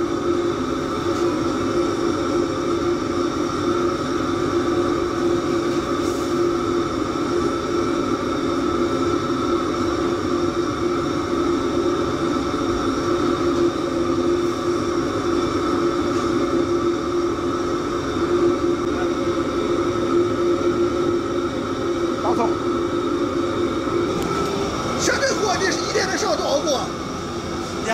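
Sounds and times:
kitchen machinery hum: 0.0s - 27.9s.

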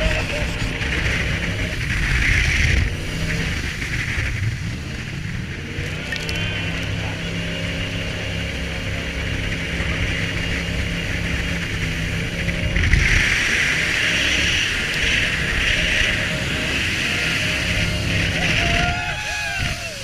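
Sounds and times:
boat engine running: 0.0s - 20.0s
water spray rushing: 0.0s - 20.0s
wind: 0.0s - 20.0s.

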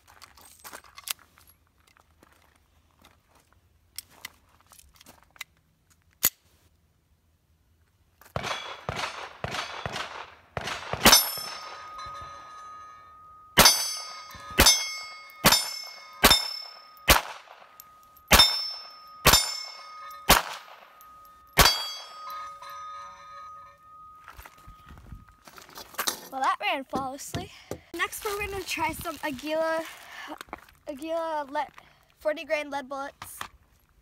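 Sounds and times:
pistol shots: 8.4s - 11.9s, 13.6s - 21.0s, 21.6s - 22.1s
steel targets clanging: 11.0s - 27.2s.

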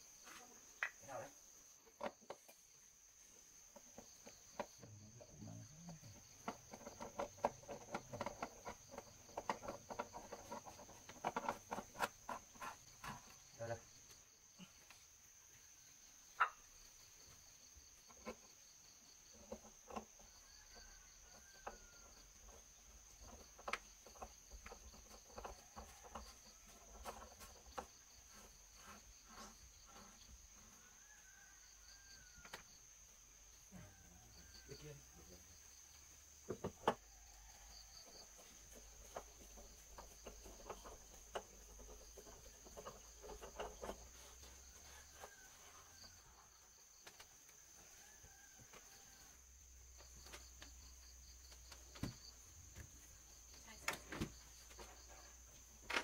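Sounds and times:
insects droning: 0.0s - 56.0s
wooden legs clicking and creaking: 3.7s - 13.6s, 18.0s - 31.5s, 36.0s - 46.2s, 49.9s - 56.0s.

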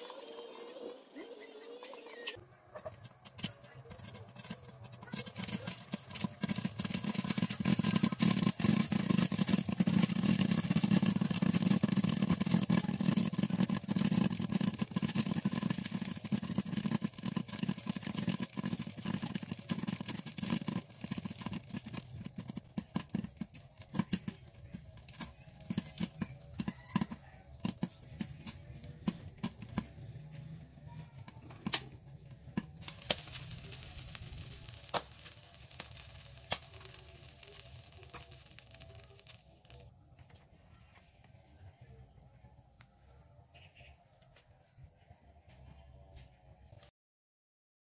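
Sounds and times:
popcorn popping in a covered pan: 2.7s - 40.5s.

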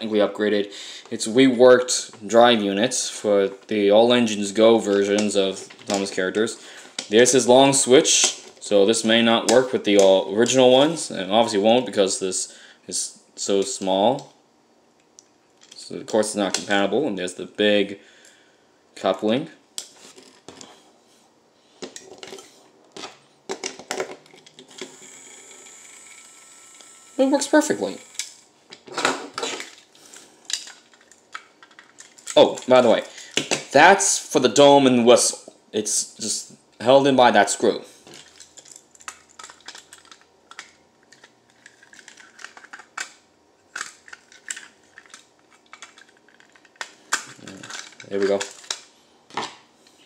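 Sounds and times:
small electric motor whine: 24.7s - 28.2s.

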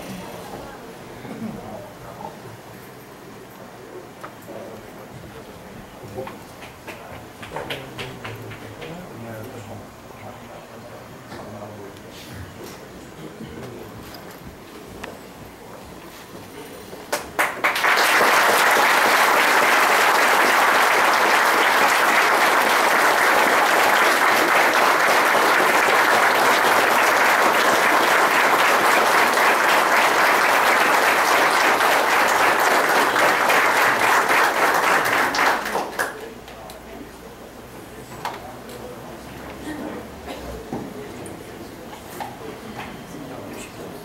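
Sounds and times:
audience applauding: 6.6s - 9.0s, 17.1s - 36.4s.

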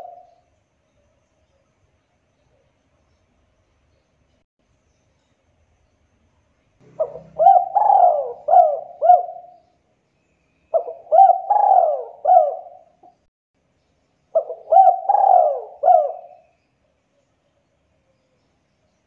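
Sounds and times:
dove cooing: 0.0s - 0.3s, 6.8s - 9.6s, 10.7s - 13.0s, 14.4s - 16.4s.

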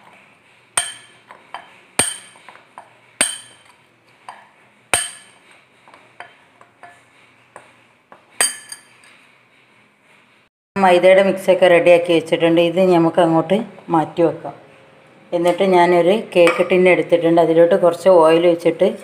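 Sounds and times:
spoon stirring dry flour: 0.0s - 10.0s
spoon clinking against bowl: 0.8s - 2.4s, 8.4s - 9.0s, 16.5s - 16.8s.

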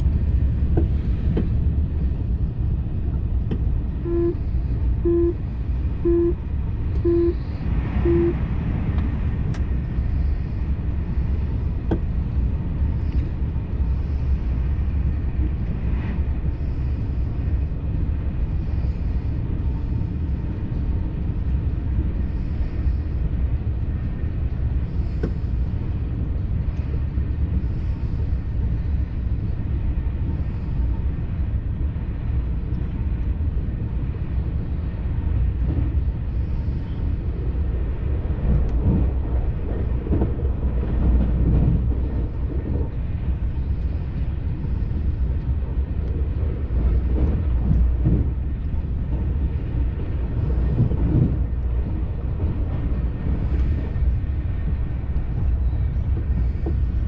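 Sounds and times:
low rumble of train: 0.0s - 57.0s
short beeps: 4.0s - 4.4s, 5.0s - 5.4s, 6.0s - 6.4s, 7.0s - 8.4s.

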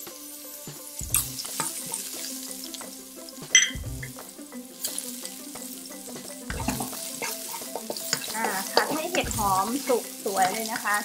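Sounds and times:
mushrooms sizzling in oil: 0.0s - 11.0s
spatula clinking on wok: 3.5s - 4.2s
metal spatula scraping wok: 6.6s - 11.0s.

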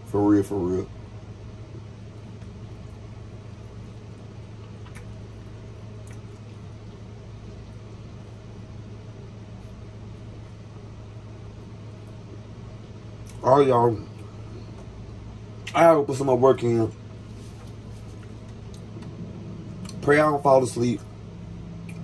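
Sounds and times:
steady low hum: 0.0s - 22.0s
soft chewing clicks: 1.7s - 8.4s, 13.2s - 13.4s, 18.1s - 19.1s, 21.8s - 22.0s.

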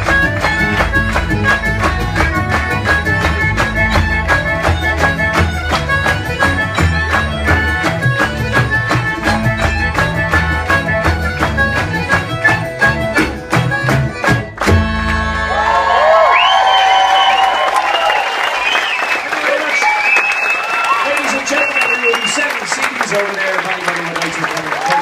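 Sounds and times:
drum beat: 0.0s - 15.0s
folk band playing fast tune: 0.0s - 16.0s, 18.0s - 25.0s
audience applause and cheering: 0.0s - 25.0s.

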